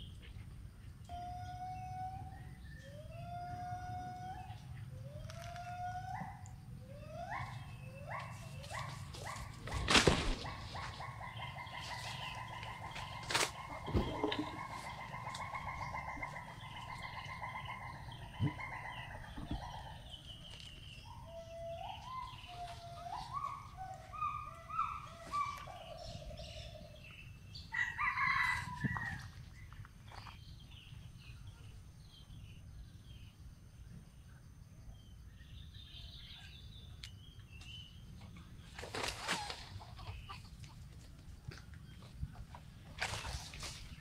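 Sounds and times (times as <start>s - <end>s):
bird calls: 0.0s - 33.4s, 35.0s - 44.0s
faint high bird chirps: 10.5s - 32.6s.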